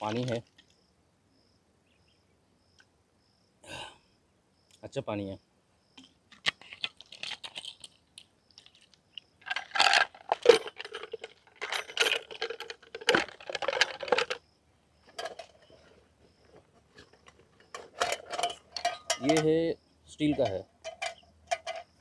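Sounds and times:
plastic bottle and items handled: 0.0s - 0.8s, 6.0s - 19.6s.

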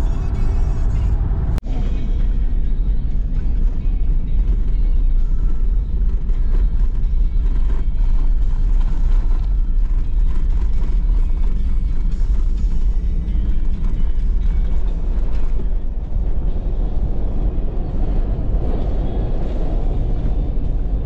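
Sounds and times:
background music: 0.0s - 21.0s
tyre and road rumble: 0.0s - 21.0s.

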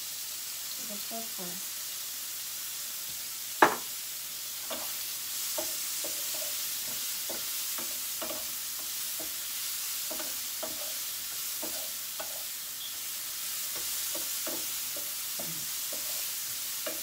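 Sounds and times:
mushrooms sizzling in a frying pan: 0.0s - 17.0s
utensil scraping a pan: 10.1s - 12.5s, 15.8s - 17.0s.

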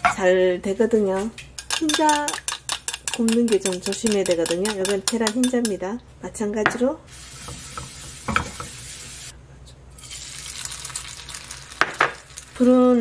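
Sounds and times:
tongs clicking: 1.6s - 5.8s
egg sizzling in a frying pan: 7.1s - 9.3s, 10.0s - 12.8s.

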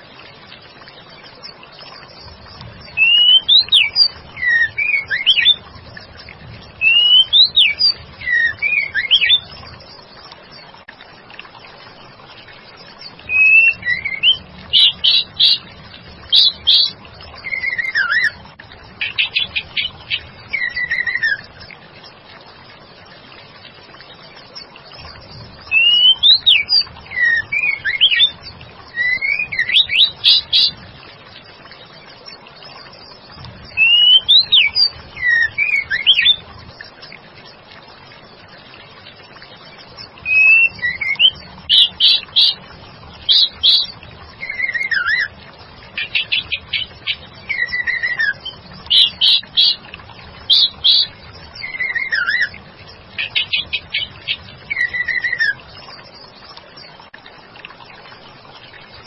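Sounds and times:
bird whistled calls: 2.9s - 5.6s, 6.8s - 9.5s, 13.3s - 15.6s, 16.3s - 18.4s, 19.0s - 21.5s, 25.7s - 28.3s, 28.9s - 30.8s, 33.7s - 36.4s, 40.2s - 42.6s, 43.2s - 45.3s, 46.0s - 49.8s, 50.5s - 52.5s, 53.2s - 55.6s.

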